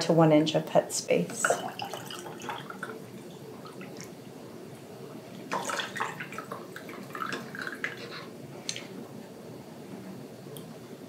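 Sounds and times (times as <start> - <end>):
liquid trickling and dripping: 1.4 - 4.2, 5.4 - 8.1.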